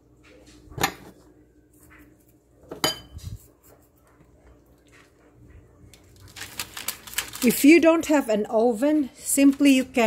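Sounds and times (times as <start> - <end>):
dish clinking against ceramic plate: 2.7 - 3.2.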